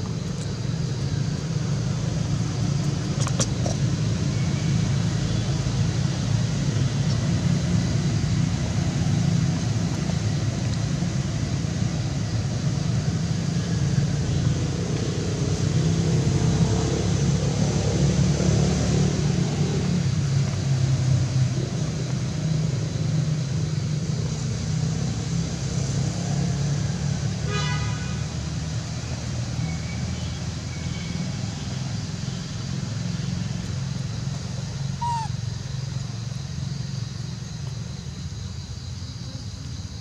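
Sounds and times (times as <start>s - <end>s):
engine droning: 0.0s - 40.0s
high falling chirp: 34.8s - 35.9s.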